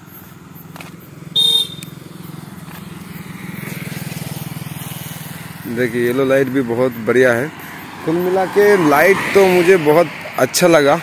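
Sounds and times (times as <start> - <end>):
motorcycle engine idling: 0.0 - 8.4
short loud beep: 1.4 - 1.8.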